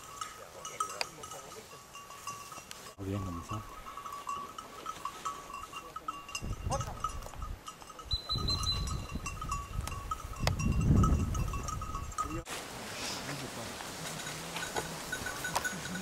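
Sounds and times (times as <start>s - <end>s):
small collar bell ringing: 0.0s - 12.5s, 14.2s - 16.0s.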